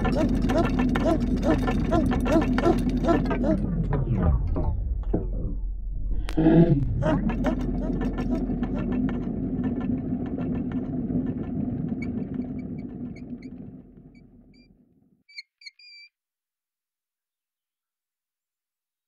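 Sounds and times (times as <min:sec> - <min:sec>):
weathervane squeaking: 0:00.0 - 0:04.1, 0:07.0 - 0:14.7, 0:15.3 - 0:16.1
train rumbling with wheel clicks: 0:00.0 - 0:05.6, 0:06.8 - 0:13.6.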